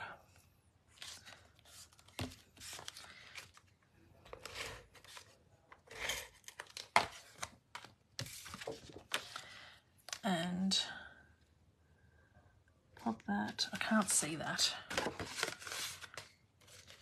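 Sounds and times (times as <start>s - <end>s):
paper rustling and scraping: 0.9s - 9.4s, 14.9s - 17.0s.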